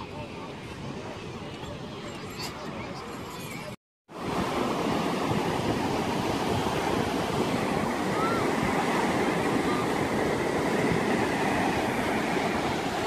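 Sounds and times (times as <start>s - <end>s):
ocean surf breaking: 4.2s - 13.0s.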